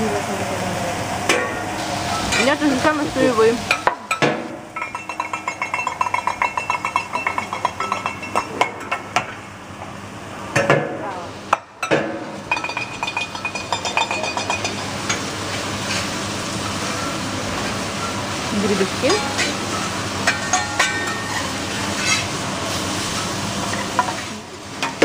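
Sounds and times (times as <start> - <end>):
metal spatulas tapping griddle: 3.7 - 9.3, 11.5 - 15.2, 19.0 - 22.2.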